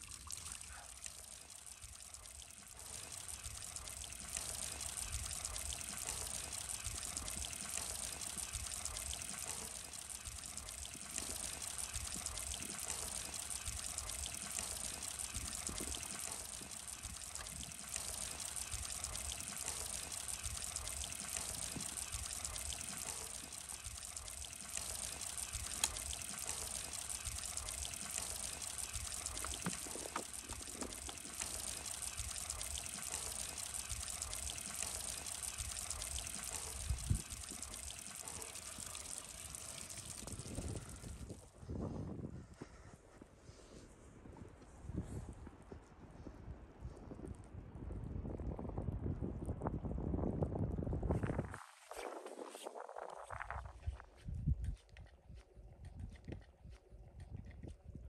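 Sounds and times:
running water trickling: 0.0 - 41.5.

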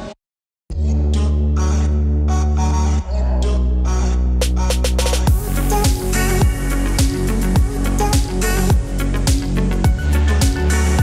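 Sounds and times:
held bass and synth notes: 0.7 - 11.0
deep kick drum beat: 5.0 - 11.0.

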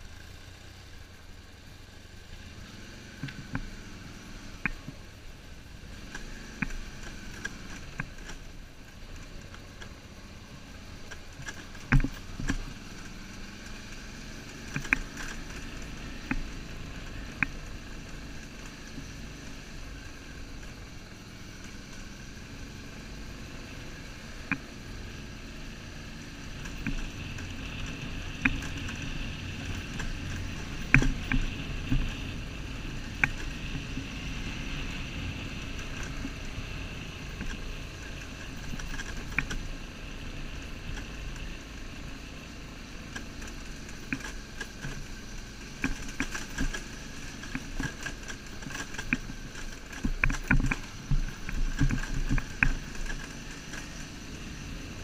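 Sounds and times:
motorcycle engine running: 0.0 - 55.0
road and wind rumble: 0.0 - 55.0
sharp knocks and rattles: 43.0 - 54.3.

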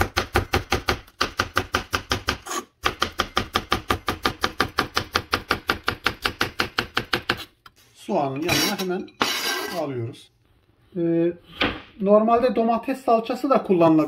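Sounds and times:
knife chopping on cutting board: 0.0 - 7.5.

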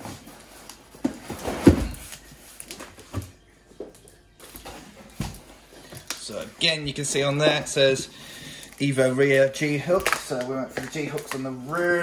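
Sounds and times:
cardboard flaps rustling and scraping: 0.0 - 3.3.

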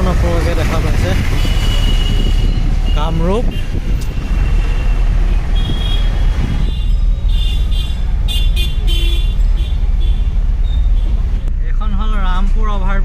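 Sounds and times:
vehicle engine and road rumble: 0.0 - 13.0.

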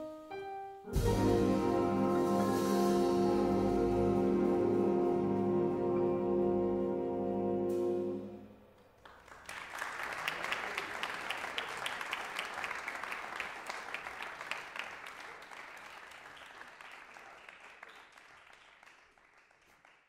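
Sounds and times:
big band final chord: 0.9 - 8.5
audience applauding: 8.8 - 20.0.

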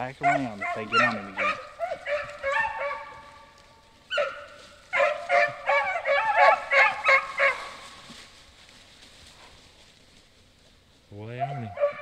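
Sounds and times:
dogs baying and barking: 0.0 - 8.2, 11.2 - 12.0.

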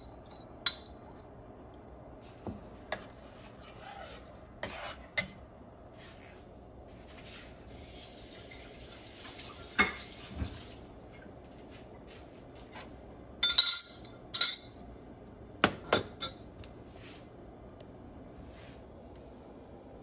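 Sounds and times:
metal utensils clinking on cookware: 13.4 - 14.8.

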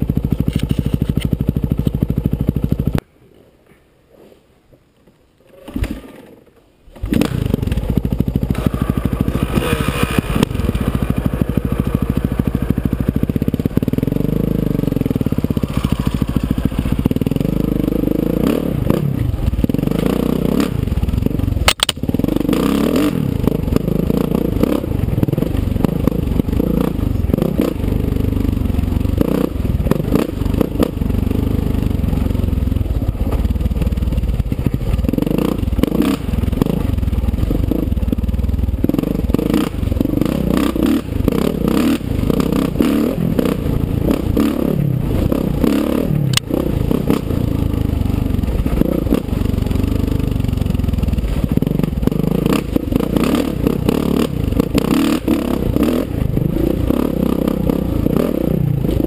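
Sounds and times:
dirt bike engine revving: 5.7 - 59.0
sharp click: 21.6 - 22.0.

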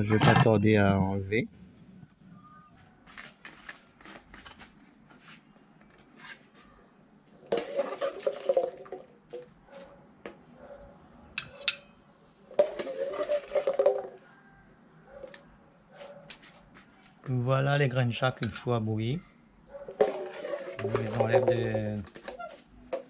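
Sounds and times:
metal spoon scraping a pot: 7.5 - 8.9, 12.6 - 14.1, 19.9 - 23.0.

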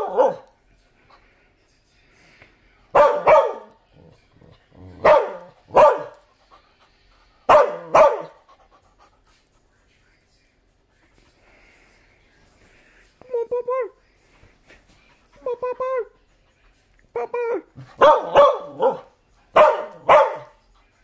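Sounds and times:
dog barking: 0.0 - 0.5, 2.9 - 3.8, 5.0 - 6.2, 7.5 - 8.4, 18.0 - 20.6.

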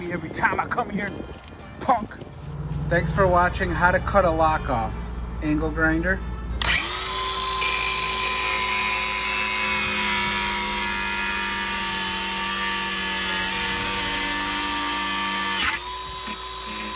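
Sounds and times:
angle grinder cutting metal: 6.6 - 16.9.

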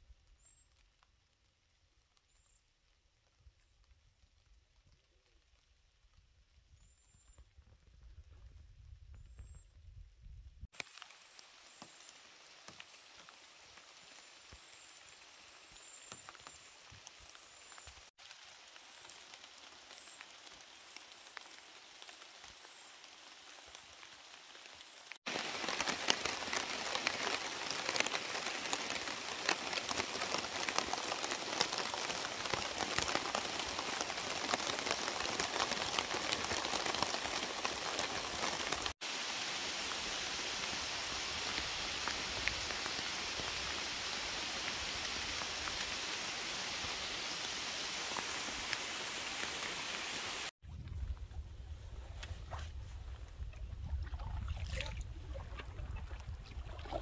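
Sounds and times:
rain falling: 10.8 - 50.5.

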